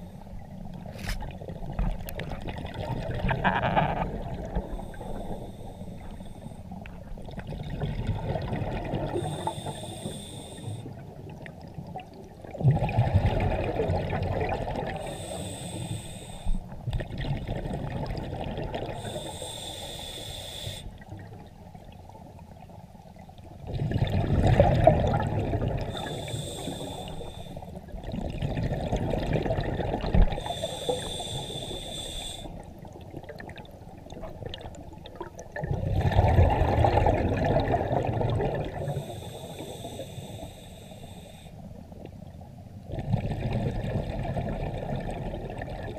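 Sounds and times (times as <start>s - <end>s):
exhaled bubbles underwater: 0.0s - 45.9s
regulator hissing inhalation: 9.2s - 10.9s, 15.0s - 16.6s, 19.0s - 20.9s, 25.9s - 27.7s, 30.4s - 32.6s, 38.8s - 41.6s.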